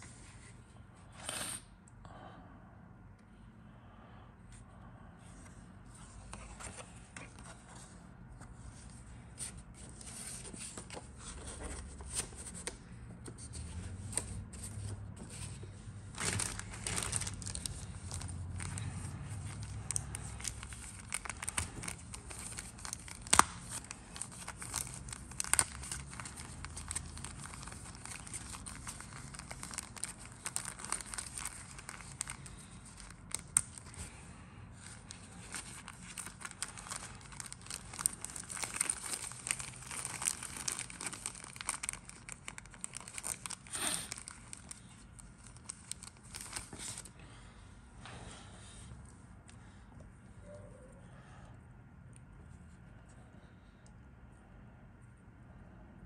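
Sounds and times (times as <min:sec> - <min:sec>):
plastic bags crinkling: 0:15.2 - 0:34.2, 0:34.8 - 0:47.1.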